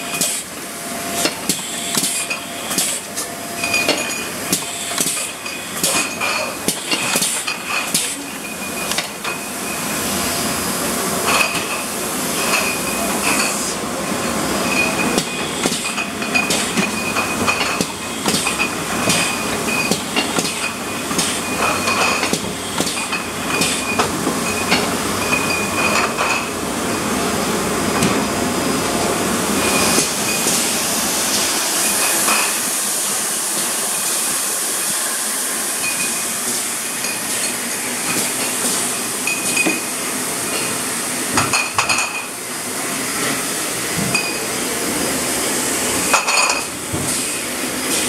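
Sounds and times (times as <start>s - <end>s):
glass bottles clinking: 3.6s - 9.5s, 14.6s - 26.5s, 35.8s - 36.2s, 39.2s - 39.9s, 41.4s - 42.3s, 44.0s - 44.4s, 46.1s - 46.7s.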